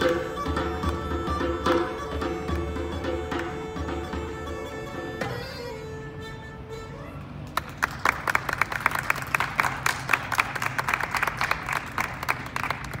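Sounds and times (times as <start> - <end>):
group applauding: 7.5 - 13.0.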